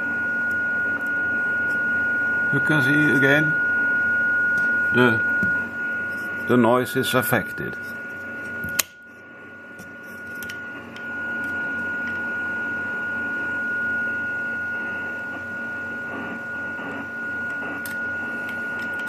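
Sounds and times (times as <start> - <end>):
receiver hiss: 14.8 - 19.0.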